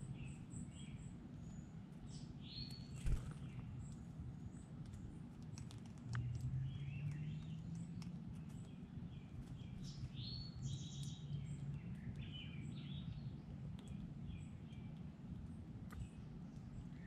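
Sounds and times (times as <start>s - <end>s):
low steady hum: 0.0s - 17.0s
songbirds chirping: 0.0s - 17.0s
faint clicks: 13.7s - 14.1s.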